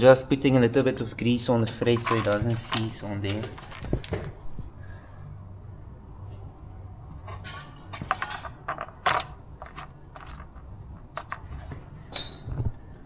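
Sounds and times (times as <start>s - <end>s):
metallic clinks of nuts and washers: 12.1s - 12.8s.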